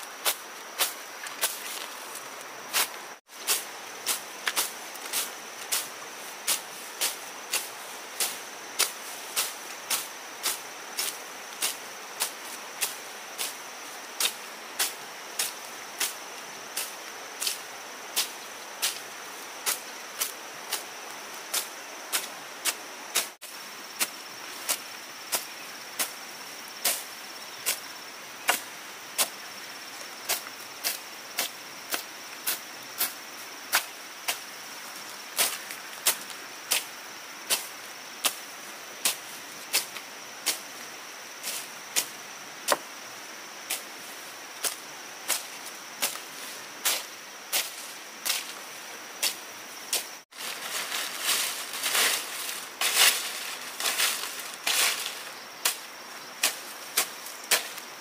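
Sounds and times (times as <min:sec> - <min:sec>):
machete slashing through grass: 0:49.2 - 0:57.8.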